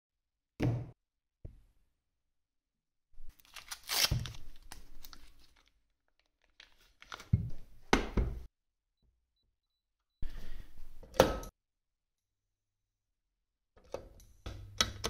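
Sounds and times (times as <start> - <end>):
paper wrapper crinkling and tearing: 3.3 - 7.3.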